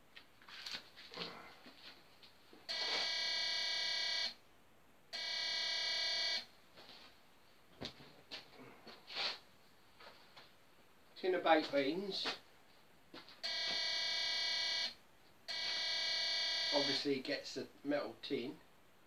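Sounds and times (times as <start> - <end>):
metal detector alarm buzzing: 2.7 - 4.3, 5.2 - 6.4, 13.4 - 17.0.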